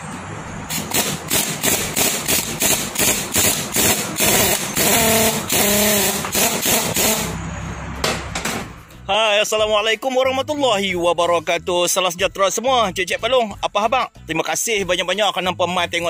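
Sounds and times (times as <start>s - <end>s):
pneumatic impact wrench hammering: 0.7s - 7.4s.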